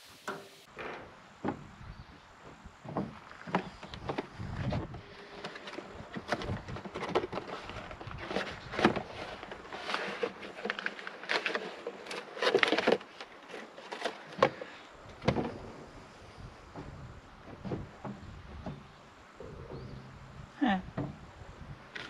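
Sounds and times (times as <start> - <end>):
cardboard and plastic rustling: 2.9 - 15.8.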